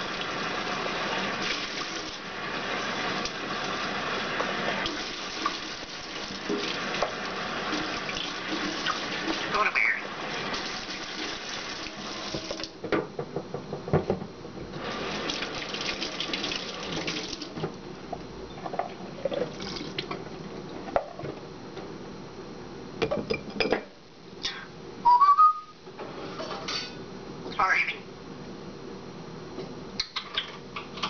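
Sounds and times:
tap running into a metal sink: 0:12.3 - 0:13.1
parrot whistle: 0:25.0 - 0:25.8
dishes clinking: 0:26.4 - 0:27.0.

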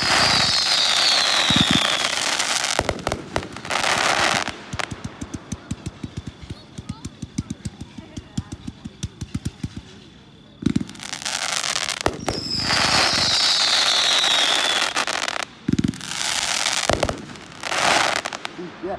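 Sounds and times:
crackling firework comets: 0:00.0 - 0:18.9
falling whistle: 0:00.2 - 0:02.2, 0:12.2 - 0:15.0
firework launch pops: 0:02.6 - 0:18.6.

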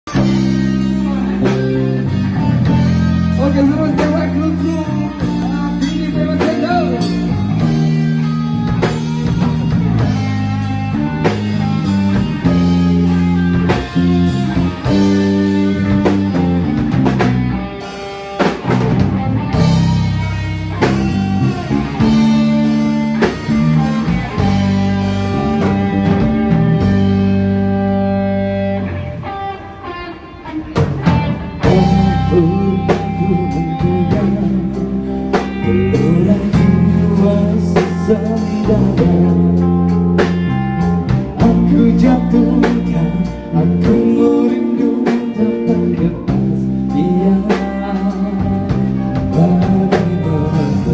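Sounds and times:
drum kit: 0:00.0 - 0:29.5, 0:30.4 - 0:50.9
electric guitar: 0:00.0 - 0:50.9.

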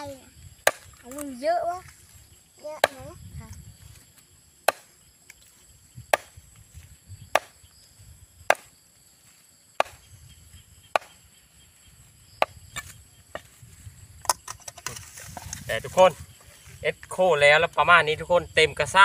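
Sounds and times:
blade chopping wood: 0:00.6 - 0:01.2, 0:04.6 - 0:05.0, 0:06.1 - 0:06.4, 0:07.3 - 0:07.6, 0:08.4 - 0:08.8, 0:09.8 - 0:10.0, 0:10.9 - 0:11.2.

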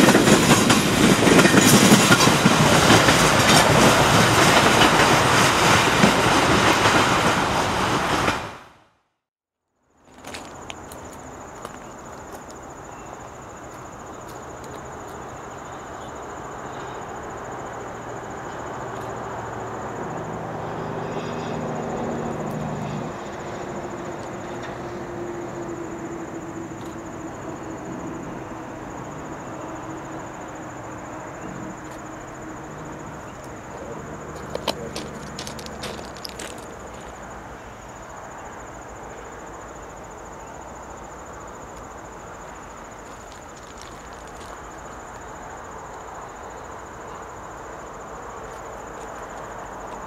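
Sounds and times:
distant diesel locomotives droning: 0:00.0 - 0:08.7, 0:10.2 - 0:50.0
insects chirring: 0:09.7 - 0:50.0.

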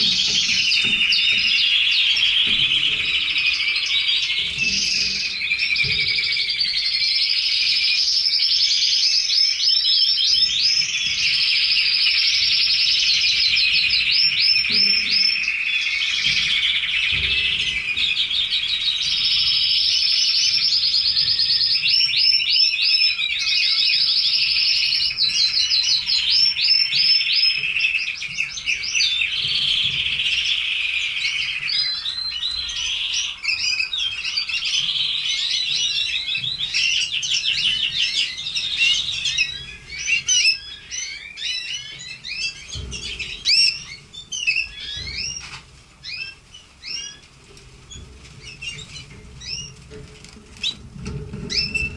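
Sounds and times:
canaries singing trills: 0:00.0 - 0:51.9.

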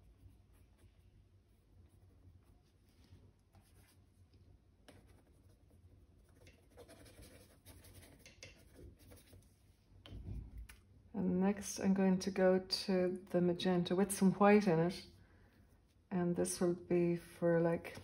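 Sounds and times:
brush scratching on canvas: 0:00.0 - 0:09.8.

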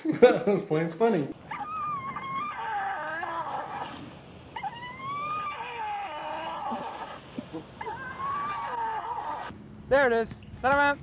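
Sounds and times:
dog whining: 0:01.4 - 0:09.5.

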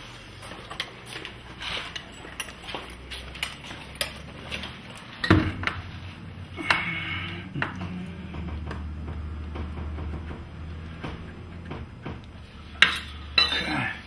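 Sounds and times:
metal tools clinking on concrete: 0:00.5 - 0:05.7, 0:12.8 - 0:14.0
loud knock: 0:07.8 - 0:12.2
ringing metal clink: 0:12.8 - 0:13.9.

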